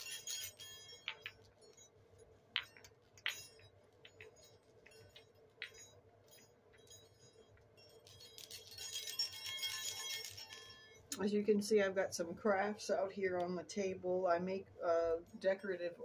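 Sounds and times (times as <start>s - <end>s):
hand chimes tinkling: 0.0s - 11.2s.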